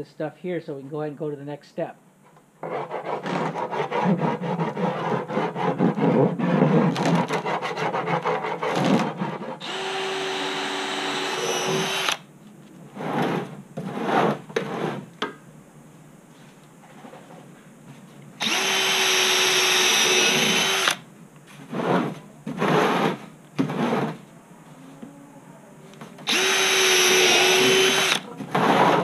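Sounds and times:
hand scraper rasping on plastic: 2.6s - 12.2s, 21.7s - 24.2s, 26.3s - 29.0s
cordless drill drilling plastic: 9.6s - 12.2s, 18.4s - 21.0s, 26.2s - 28.3s.

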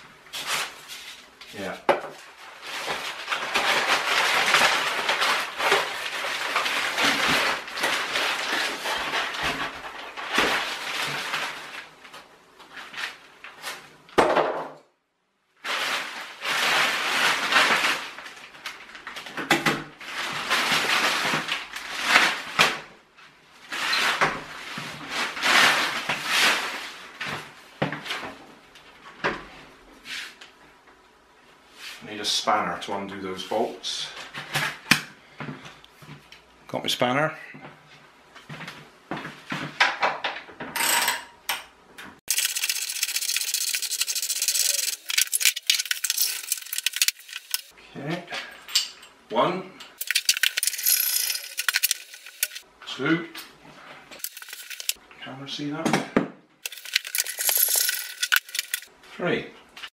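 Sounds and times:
plastic wrapping rustling: 0.3s - 13.9s, 15.6s - 19.4s, 20.0s - 22.9s, 42.3s - 47.7s, 50.0s - 52.6s, 54.2s - 55.0s, 56.6s - 58.9s.

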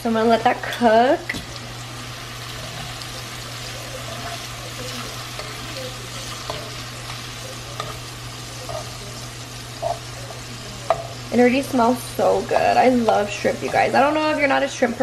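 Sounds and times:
shrimp sizzling in a frying pan: 0.0s - 15.0s
metal tongs clicking on pan: 4.2s - 8.0s.

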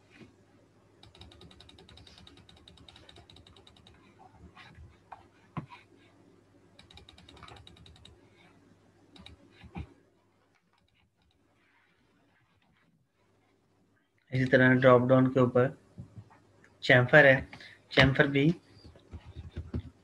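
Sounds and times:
faint steady hum: 0.0s - 20.0s
mouse scroll-wheel ticks: 1.0s - 4.1s, 6.8s - 8.2s, 9.2s - 9.4s.

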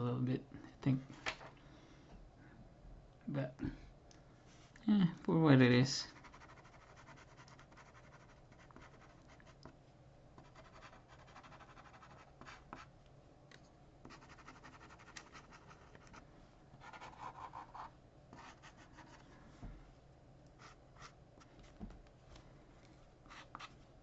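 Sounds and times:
pen scratching on paper: 6.2s - 9.6s, 10.4s - 12.9s, 14.1s - 16.2s, 16.8s - 19.2s.

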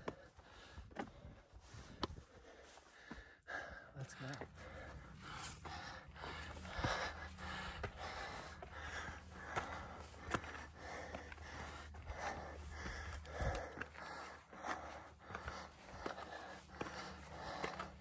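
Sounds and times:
person breathing hard: 0.0s - 18.0s
footsteps on rock: 4.1s - 18.0s.

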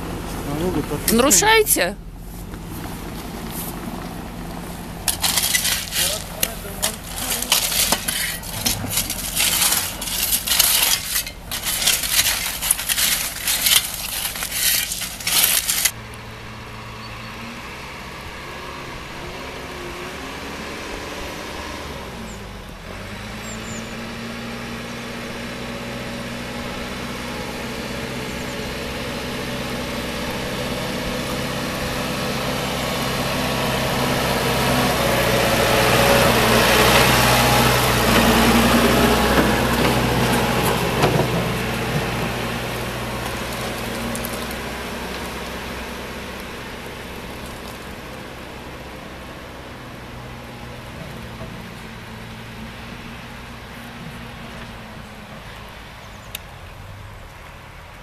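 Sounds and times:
diesel engine of backhoe loader: 0.0s - 58.0s
shovels scraping crushed stone: 5.0s - 16.0s, 43.2s - 44.6s.

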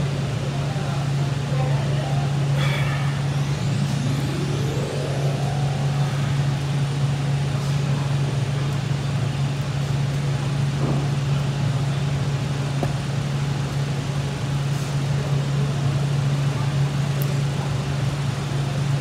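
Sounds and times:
low machine hum: 0.0s - 19.0s
faint rising whine: 2.9s - 8.0s.

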